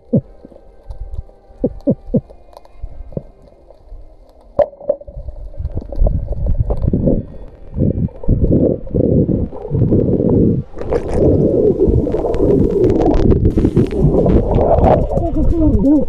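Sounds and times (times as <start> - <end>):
faint underwater clicks and knocks: 0.0 - 11.4
rushing water and bubbling: 0.0 - 16.0.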